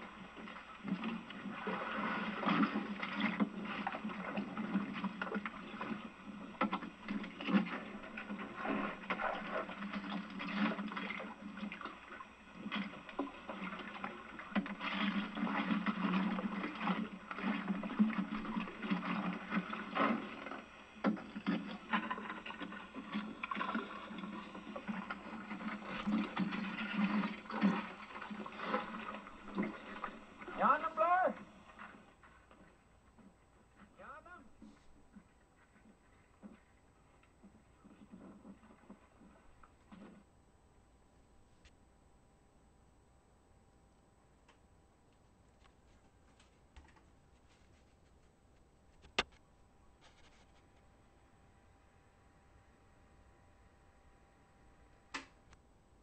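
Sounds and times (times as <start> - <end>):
water sloshing: 0.0 - 40.3.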